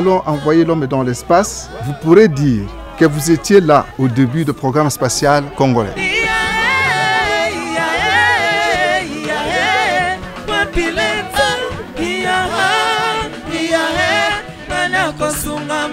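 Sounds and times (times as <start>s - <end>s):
person singing with accompaniment: 5.9s - 15.9s.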